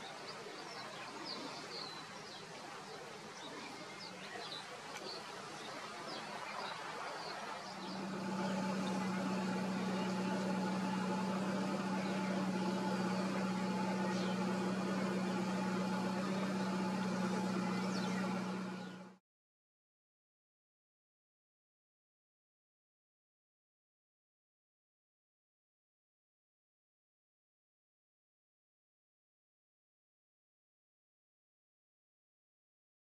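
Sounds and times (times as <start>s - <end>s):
outdoor background noise: 0.0s - 19.2s
bird chirps: 3.4s - 19.2s
low hum with overtones: 7.4s - 19.2s.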